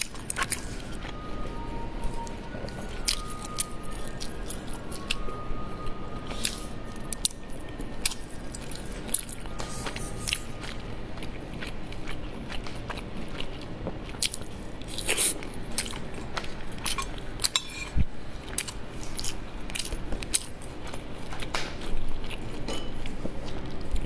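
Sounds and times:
mouth chewing food: 0:08.0 - 0:17.6.

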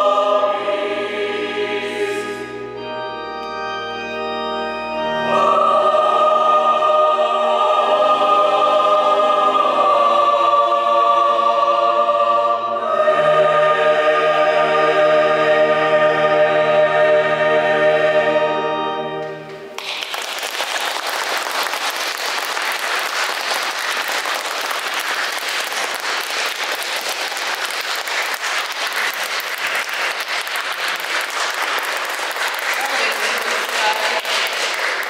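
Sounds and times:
choir singing: 0:00.0 - 0:03.2, 0:05.0 - 0:19.8
audience applauding: 0:19.8 - 0:35.0.

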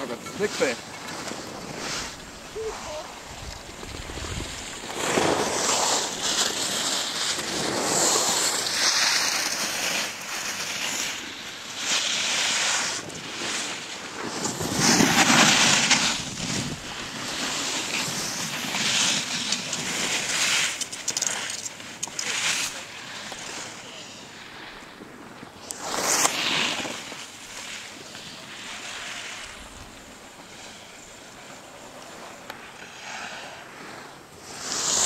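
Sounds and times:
skis scraping over snow: 0:00.0 - 0:35.0
wind buffeting microphone: 0:02.2 - 0:04.8.

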